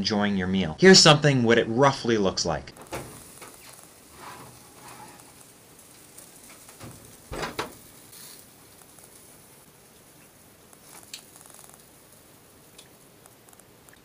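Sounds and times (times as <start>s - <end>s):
baking tray clunks: 2.8s - 3.6s, 4.2s - 5.4s, 6.7s - 7.9s
kitchen handling sounds: 2.8s - 5.4s, 6.4s - 8.1s.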